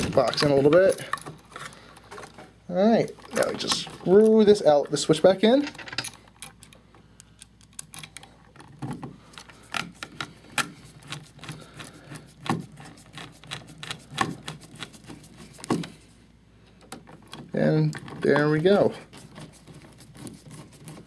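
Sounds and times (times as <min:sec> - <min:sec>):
screwdriver clicking and scraping: 0:09.4 - 0:15.8.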